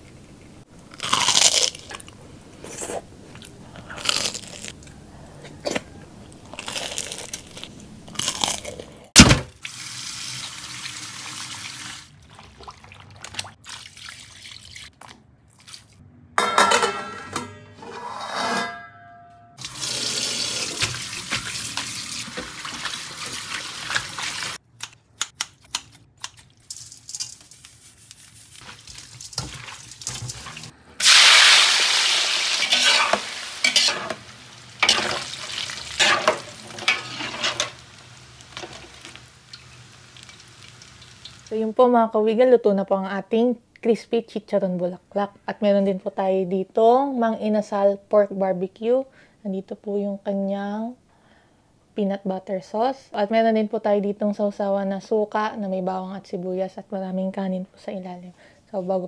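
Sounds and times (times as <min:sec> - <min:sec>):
oil sizzling in wok: 0:09.6 - 0:12.1, 0:19.6 - 0:24.6, 0:26.8 - 0:41.6
tap water running: 0:09.6 - 0:14.7, 0:19.6 - 0:24.6
kitchen scissors clicking: 0:24.8 - 0:26.5.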